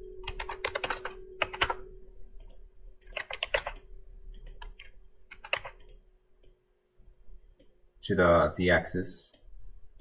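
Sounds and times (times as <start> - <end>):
faint steady hum: 0.0 - 10.0
keyboard typing clicks: 0.2 - 6.6.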